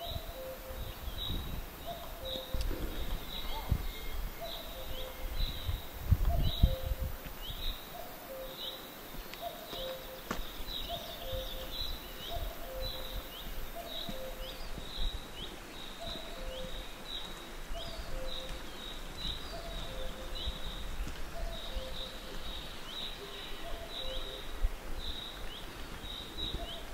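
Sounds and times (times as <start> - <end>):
bird chirping: 0.0 - 26.9
low thumps: 2.5 - 4.4.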